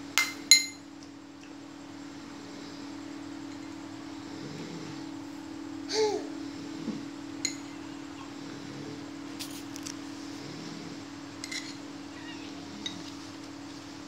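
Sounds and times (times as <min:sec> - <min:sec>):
steady low hum: 0:00.0 - 0:14.0
metal spoon clinking bowl: 0:00.2 - 0:00.8, 0:07.4 - 0:07.7.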